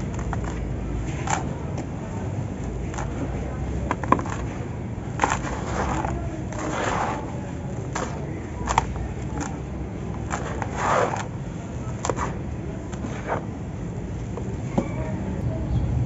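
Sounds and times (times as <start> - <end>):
sand and gravel crunching: 2.7 - 13.7.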